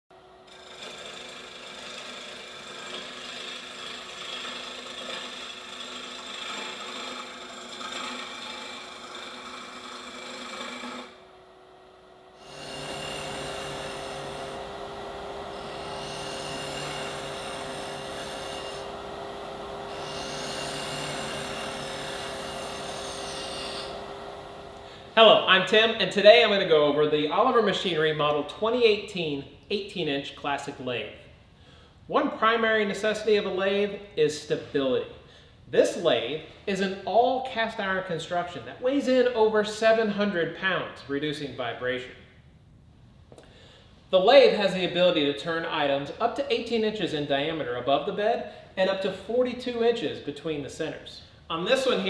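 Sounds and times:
lathe motor hum: 0.2 - 25.2
gouge scraping spinning wood: 0.4 - 11.2, 12.4 - 24.8.

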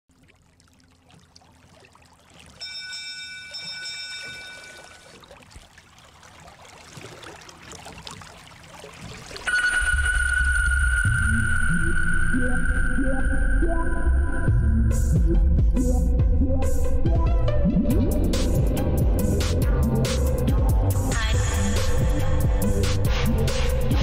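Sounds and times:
bell-like chime: 2.6 - 5.1, 9.5 - 12.2
steady high tone: 9.5 - 14.6
ambient music: 9.5 - 24.0
deep bass: 10.6 - 24.0.

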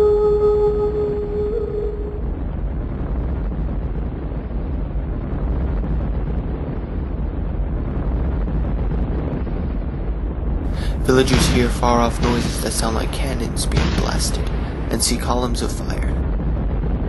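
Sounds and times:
held musical tone: 0.0 - 2.3
volcanic eruption rumble: 0.0 - 17.0.

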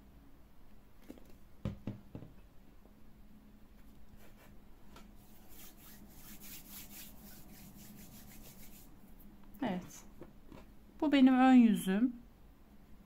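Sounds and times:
hand rubbing fabric on table: 5.2 - 9.0.

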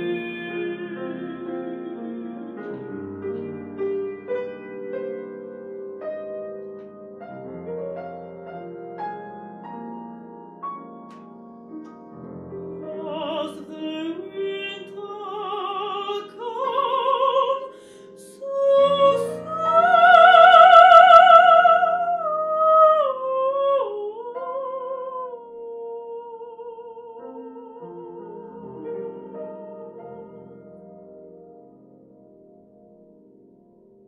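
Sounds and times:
woman singing with vibrato: 0.0 - 3.0, 12.7 - 29.9
grand piano accompaniment: 0.0 - 34.0.

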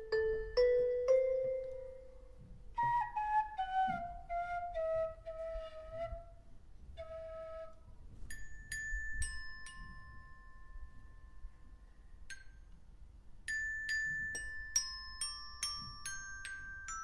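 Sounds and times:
glockenspiel notes ringing: 0.0 - 2.4, 8.3 - 12.7, 13.5 - 17.0.

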